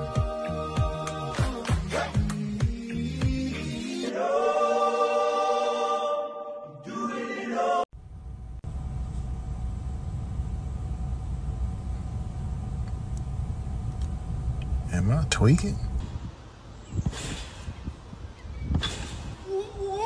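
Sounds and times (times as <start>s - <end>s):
choir holding a chord: 0.0s - 1.6s, 3.5s - 7.9s
steady low rumble: 8.0s - 20.0s.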